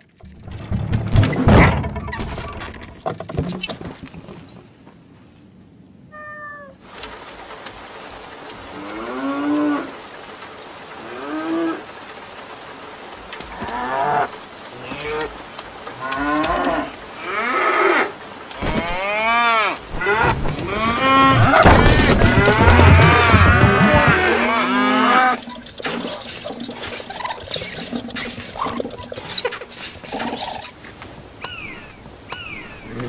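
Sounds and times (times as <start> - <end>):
rain hiss: 6.8 - 33.0
cartoon cows mooing: 16.0 - 28.1.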